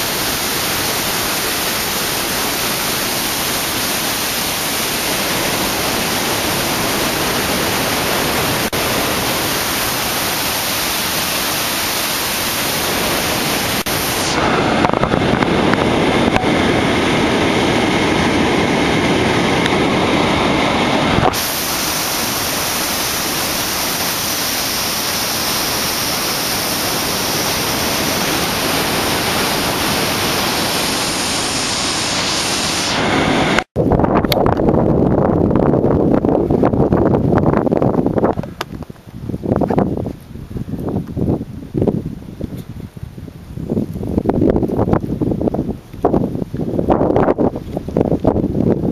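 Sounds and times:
wind buffeting microphone: 0.0s - 31.1s, 33.1s - 48.9s
white water rushing over boulders: 0.0s - 33.7s.

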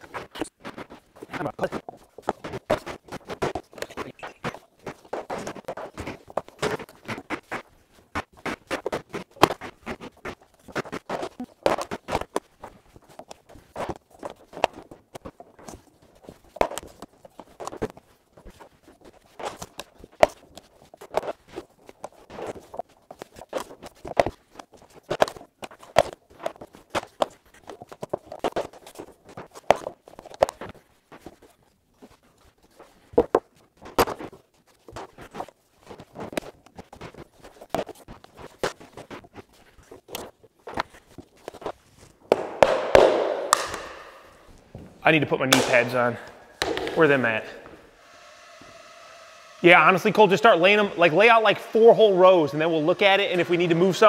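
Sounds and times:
footsteps on floor: 41.6s - 45.1s, 45.7s - 48.0s.

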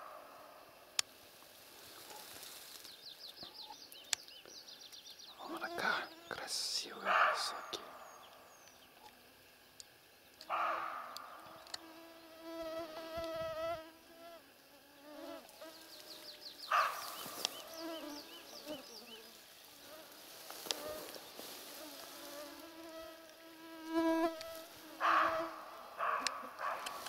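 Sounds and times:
small birds chirping: 1.8s - 13.3s, 14.8s - 27.0s
deer alarm barks: 7.0s - 8.2s, 10.5s - 11.4s, 16.7s - 17.2s, 25.0s - 27.0s.

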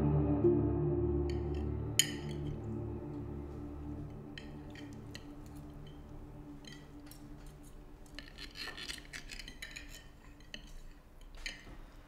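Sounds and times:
low musical tone: 0.0s - 9.0s
cutlery scraping on plates: 1.4s - 12.0s.

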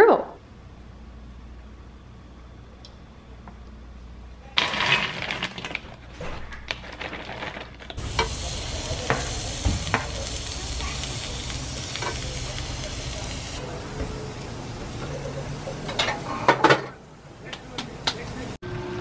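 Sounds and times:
gnocchi sizzling in a pan: 7.9s - 15.9s
steaks sizzling on a grill: 8.0s - 16.5s.

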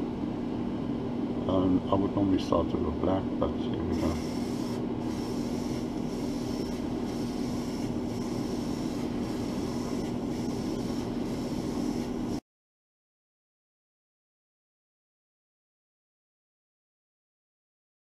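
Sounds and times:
air compressor humming: 3.8s - 12.4s
airbrush hissing: 3.9s - 12.4s.

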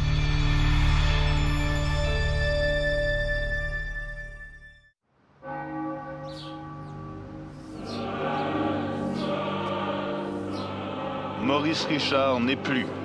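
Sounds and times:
theme music: 0.0s - 13.0s
church bells ringing: 5.4s - 13.0s.

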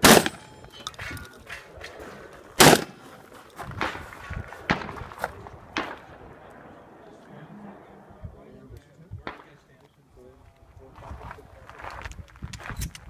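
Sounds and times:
shotgun shot: 0.0s - 0.6s, 2.6s - 3.0s, 3.8s - 6.3s.

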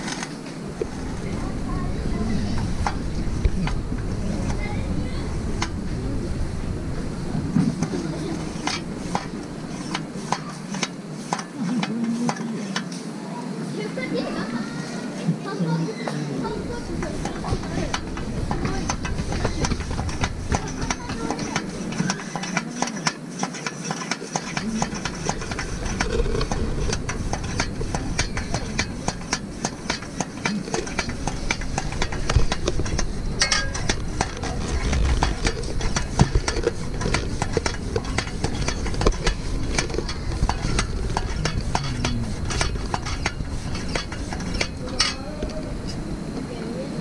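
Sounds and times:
lantern pump clicks and scrapes: 0.0s - 1.1s, 7.6s - 13.0s, 16.7s - 46.0s.

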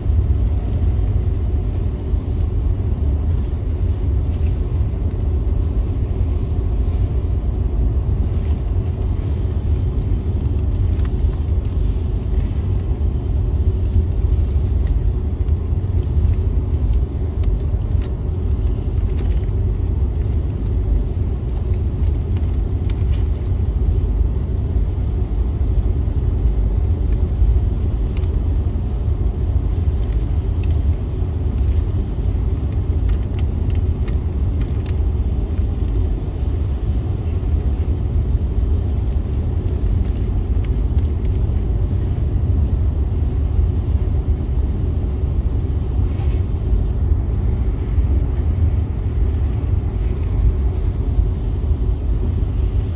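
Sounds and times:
car cabin road rumble: 0.0s - 52.9s
rain ticking on glass: 29.8s - 36.1s.

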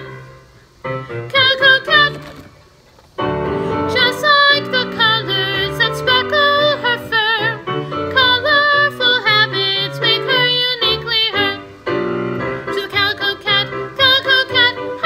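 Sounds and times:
piano accompaniment: 0.0s - 15.0s.

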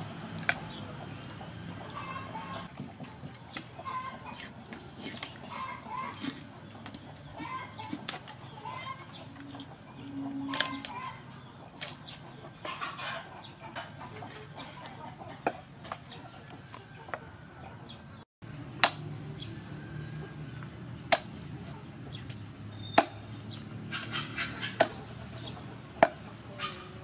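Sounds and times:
chickens clucking: 0.0s - 18.2s, 19.2s - 27.0s
cleaver chopping chicken on wood: 18.8s - 19.1s, 21.1s - 21.8s, 22.8s - 23.2s, 24.1s - 25.1s, 25.9s - 26.3s.

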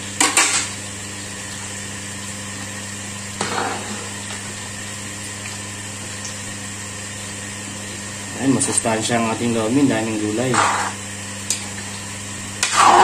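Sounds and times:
background hum: 0.0s - 13.0s
metal utensil scraping a wok: 10.5s - 11.0s, 12.6s - 13.0s.

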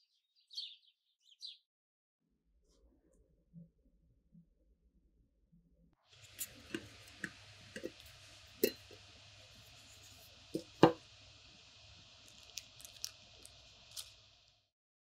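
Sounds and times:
steady background hiss: 6.2s - 14.7s.

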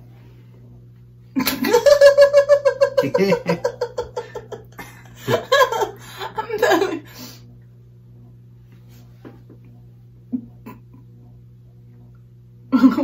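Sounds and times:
woman laughing: 1.4s - 7.3s, 10.3s - 11.1s, 12.7s - 13.0s.

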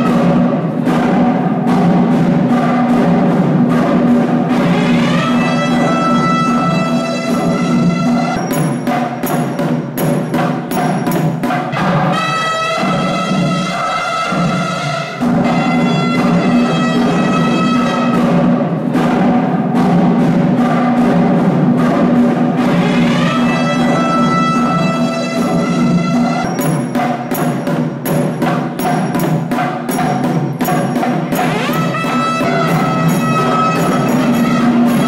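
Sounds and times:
sharp drum strokes: 0.0s - 35.0s
reed horn melody: 11.7s - 18.4s, 22.9s - 26.5s, 31.4s - 35.0s.

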